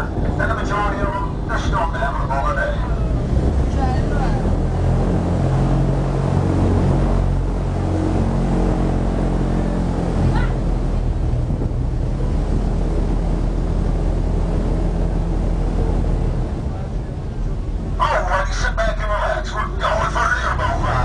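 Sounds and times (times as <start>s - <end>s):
wind noise: 0.0s - 16.6s
airboat engine and propeller: 0.0s - 21.0s.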